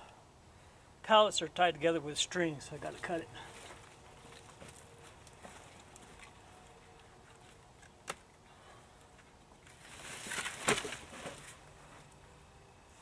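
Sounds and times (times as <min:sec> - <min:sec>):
dry brush rustling and crackling: 0:02.7 - 0:08.3, 0:09.2 - 0:12.1.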